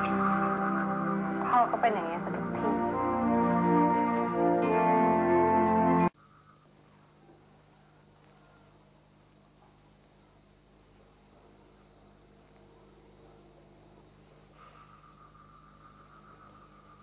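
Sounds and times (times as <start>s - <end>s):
crickets chirping: 0.0s - 3.3s, 6.2s - 17.0s.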